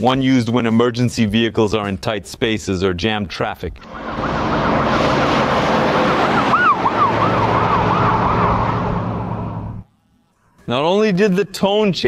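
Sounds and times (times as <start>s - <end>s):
tyre and road noise: 3.8s - 9.8s
yelp siren warbling: 3.8s - 9.8s.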